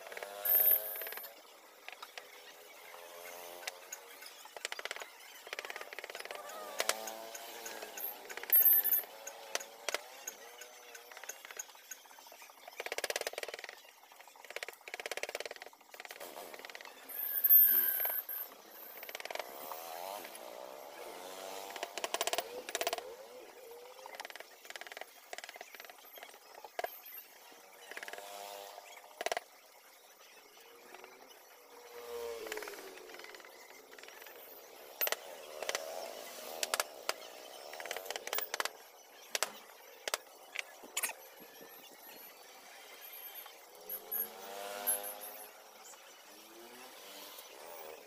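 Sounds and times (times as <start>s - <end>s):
sharp clicks and knocks: 21.7s - 23.0s, 36.6s - 41.7s.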